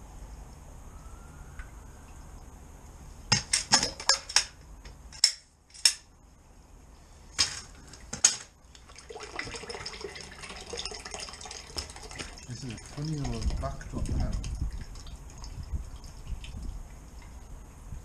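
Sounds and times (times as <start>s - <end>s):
water running through channel: 8.6s - 18.0s.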